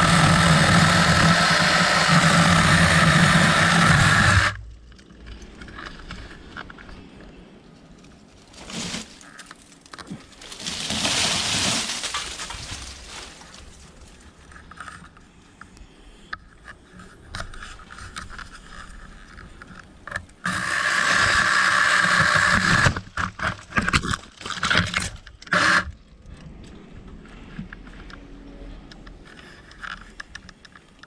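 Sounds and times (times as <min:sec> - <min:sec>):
mini chainsaw whining: 0:00.0 - 0:04.6
rustling leaves: 0:05.2 - 0:15.4
twigs snapping: 0:08.0 - 0:15.3.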